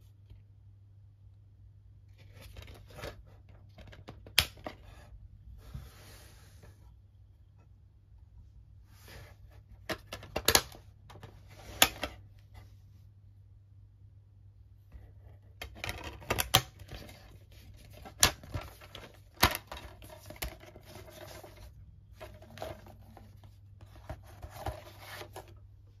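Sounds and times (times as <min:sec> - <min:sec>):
plastic rustling and scraping: 0:15.7 - 0:25.6.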